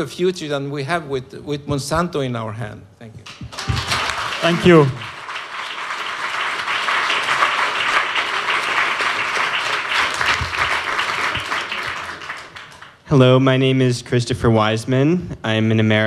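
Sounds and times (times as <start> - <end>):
audience applauding: 3.3 - 13.0.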